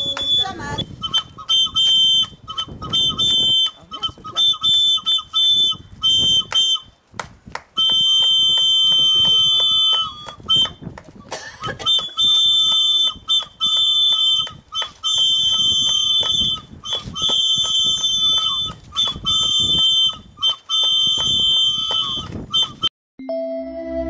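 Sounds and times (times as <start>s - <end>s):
hand claps: 0.0s - 0.3s, 1.6s - 3.5s, 6.4s - 22.8s
shrill whistle blasts: 0.0s - 6.9s, 7.8s - 10.8s, 11.6s - 22.9s.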